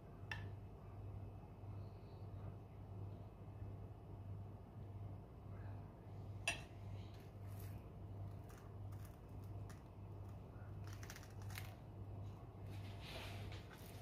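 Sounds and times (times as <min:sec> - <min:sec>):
low steady hum: 0:00.0 - 0:14.0
toast crackling and rustling: 0:07.1 - 0:14.0.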